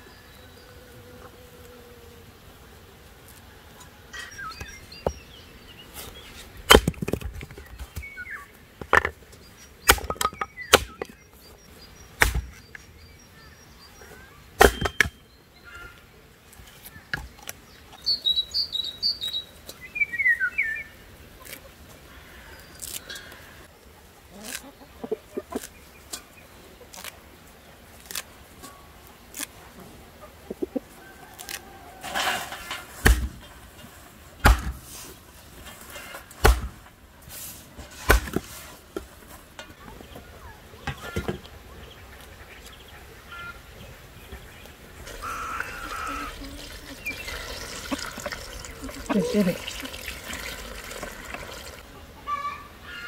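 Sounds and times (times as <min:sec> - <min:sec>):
small birds chirping: 0:03.7 - 0:06.6, 0:07.5 - 0:27.1, 0:39.5 - 0:52.6
axe splitting firewood: 0:06.6 - 0:08.0, 0:09.8 - 0:11.1, 0:12.2 - 0:12.7, 0:14.6 - 0:15.2, 0:32.0 - 0:33.4, 0:34.4 - 0:34.9, 0:36.0 - 0:36.9, 0:37.9 - 0:39.3.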